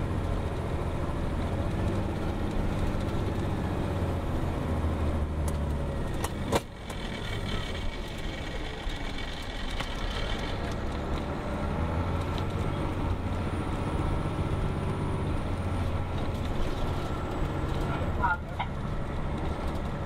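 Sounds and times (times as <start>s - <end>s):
bus diesel engine droning: 0.0s - 20.0s.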